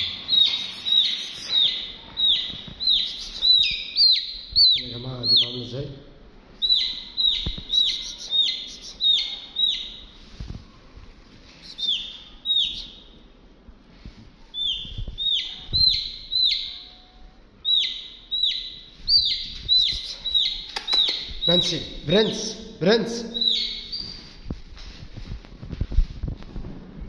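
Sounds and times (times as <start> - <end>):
chick peeping: 0.0 - 5.7, 6.6 - 10.1, 11.6 - 13.1, 14.5 - 22.5, 23.2 - 24.4.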